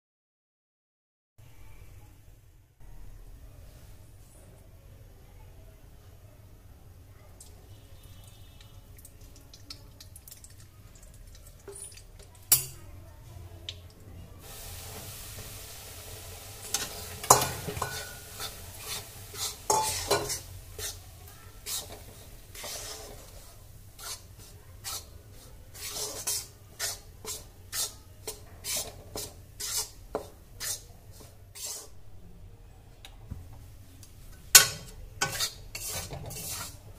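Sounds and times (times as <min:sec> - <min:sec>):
fat sizzling: 0:13.7 - 0:32.2, 0:33.6 - 0:36.9
metal spatula scraping pan: 0:16.6 - 0:32.0, 0:34.3 - 0:36.9.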